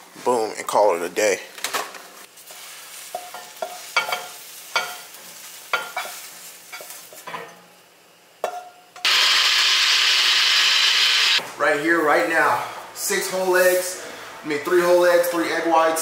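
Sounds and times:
light sizzling: 2.2s - 7.9s, 9.0s - 11.4s
metal skillet clinks and scrapes: 3.1s - 5.1s
blender running: 9.0s - 11.4s.

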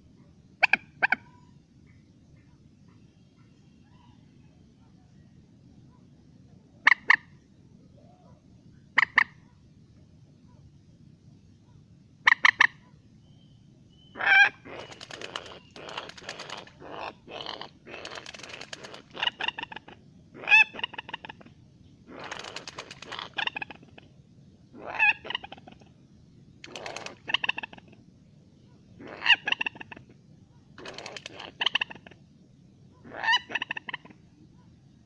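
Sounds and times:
moorhen calling: 13.9s - 21.5s, 22.1s - 24.1s, 24.8s - 25.9s, 26.7s - 28.0s, 28.7s - 30.1s, 33.0s - 34.2s.

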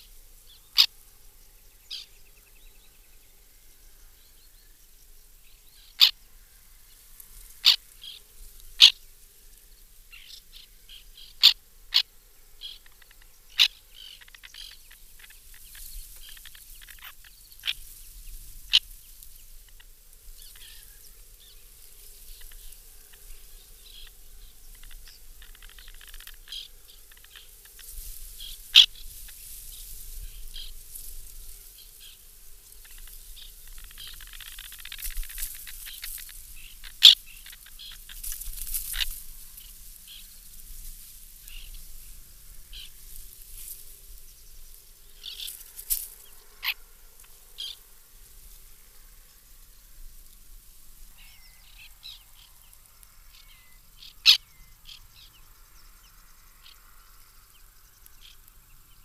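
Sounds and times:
terns calling sharply: 0.0s - 1.0s, 1.9s - 2.2s, 5.6s - 6.2s, 7.3s - 9.2s, 10.1s - 47.9s, 51.1s - 55.3s
faint bird calls: 0.0s - 50.1s, 51.0s - 59.0s.

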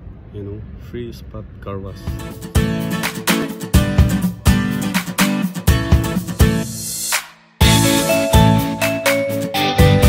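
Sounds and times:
strummed guitar chords: 2.0s - 10.0s.

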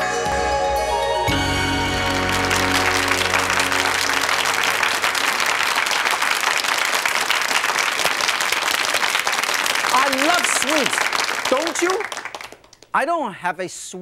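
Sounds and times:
theme music: 0.0s - 6.2s
audience applauding: 1.5s - 12.9s.

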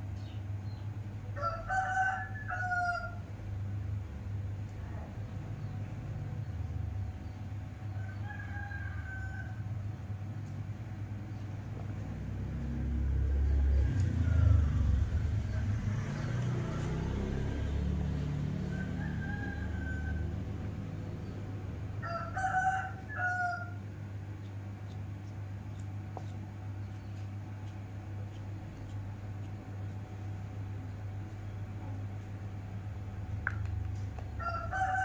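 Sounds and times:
rooster crowing: 1.3s - 3.3s, 7.9s - 10.0s, 12.6s - 21.2s, 21.9s - 23.8s, 34.4s - 35.0s
low rumble: 9.8s - 22.0s.

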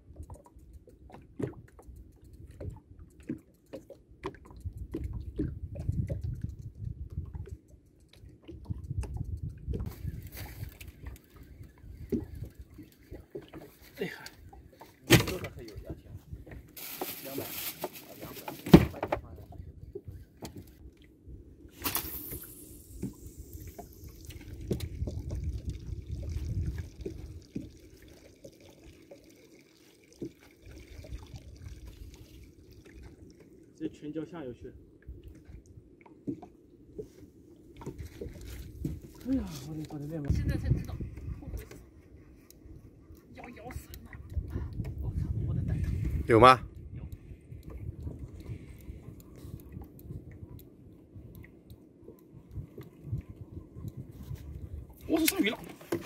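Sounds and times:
small splashes and drips: 0.0s - 15.9s, 21.8s - 40.9s
water slapping against hull: 0.0s - 20.9s, 21.7s - 34.1s, 35.2s - 56.0s.

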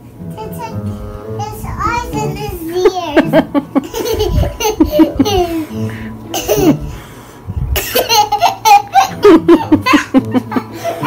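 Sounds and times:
young child laughing: 2.2s - 7.0s, 7.8s - 11.0s.

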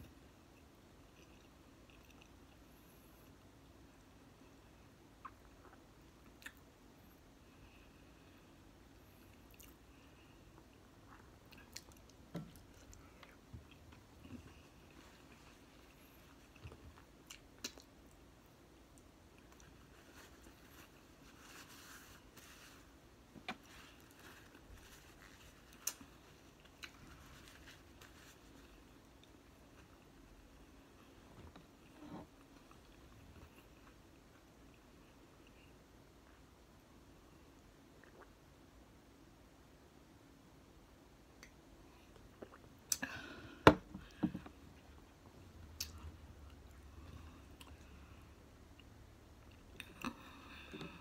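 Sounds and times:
chewing: 0.6s - 2.7s
paper napkin rustling: 19.9s - 23.0s.

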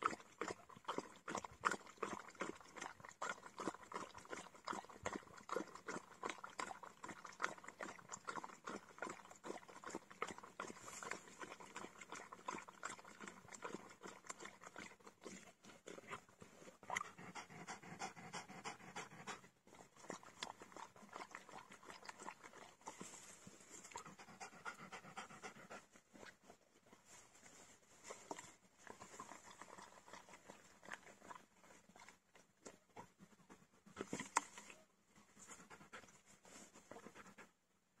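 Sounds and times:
dog lapping water: 0.0s - 27.0s, 28.1s - 37.5s
dog panting: 16.9s - 20.8s, 23.9s - 26.0s, 35.4s - 37.6s.

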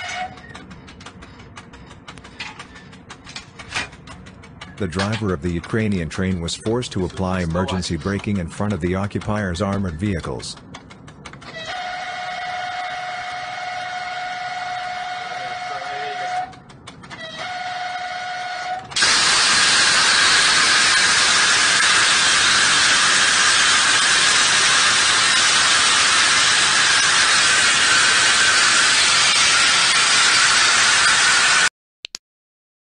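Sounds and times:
train horn: 0.0s - 0.4s, 11.5s - 16.6s, 17.2s - 19.7s.

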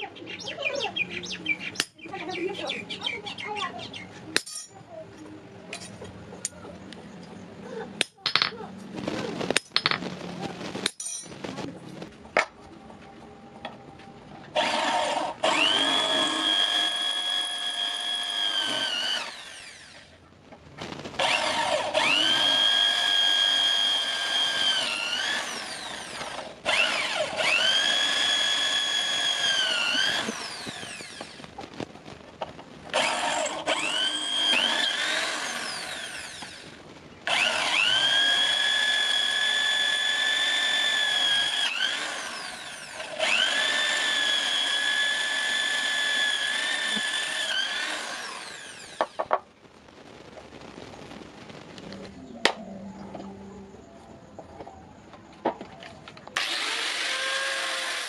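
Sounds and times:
electric drill boring through metal: 14.5s - 20.2s, 21.2s - 31.5s, 32.9s - 49.4s, 56.4s - 58.0s.

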